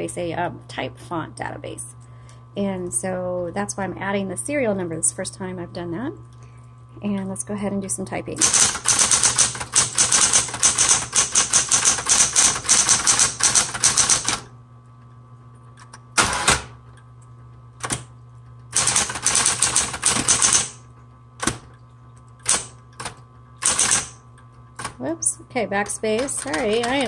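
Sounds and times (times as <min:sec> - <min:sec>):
typewriter carriage return clatter: 0:08.4 - 0:14.4, 0:16.2 - 0:16.7, 0:18.8 - 0:20.8, 0:22.4 - 0:24.2, 0:26.0 - 0:27.0
typewriter key strikes: 0:08.4 - 0:14.4, 0:18.8 - 0:20.8, 0:22.4 - 0:24.2
typewriter motor humming: 0:08.4 - 0:14.5, 0:15.9 - 0:16.8, 0:17.8 - 0:18.1, 0:18.7 - 0:20.8, 0:22.4 - 0:24.2, 0:25.8 - 0:27.0.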